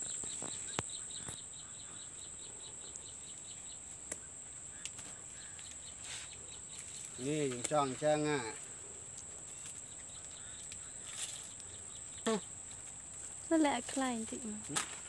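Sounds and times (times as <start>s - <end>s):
insects high-pitched drone: 0.0s - 8.8s
rhythmic insect chirping: 0.0s - 14.6s.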